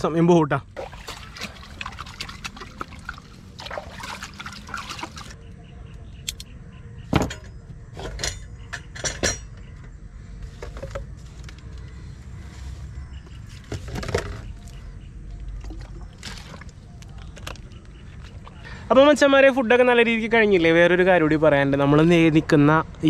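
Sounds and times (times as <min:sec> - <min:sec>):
water pouring and splashing: 0:00.8 - 0:05.4, 0:15.5 - 0:16.9.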